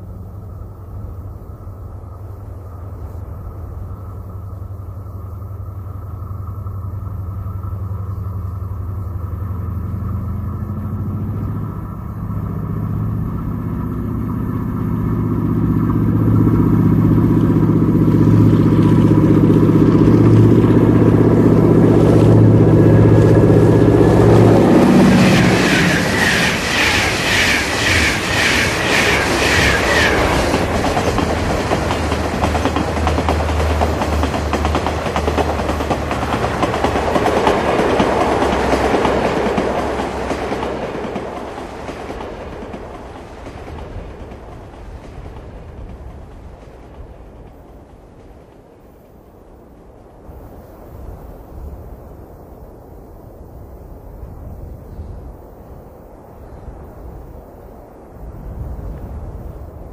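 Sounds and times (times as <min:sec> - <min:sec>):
train engine rumble: 0:00.0 - 0:59.9
rhythmic train wheel clatter: 0:05.8 - 0:49.6.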